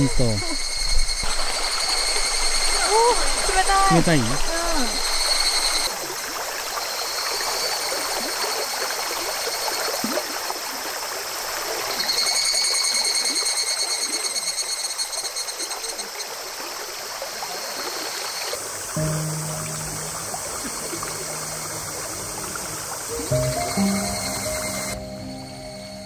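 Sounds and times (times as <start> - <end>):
high pulsing buzz: 0.0 - 5.9, 19.0 - 26.0
stream trickling: 0.0 - 26.0
low steady tone: 19.0 - 26.0.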